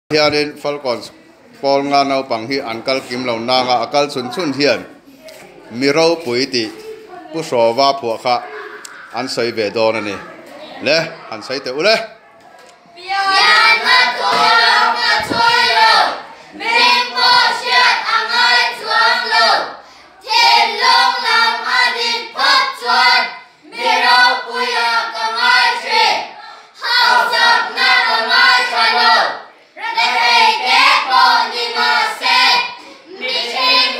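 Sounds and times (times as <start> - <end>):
children singing in unison: 13.0 - 33.9.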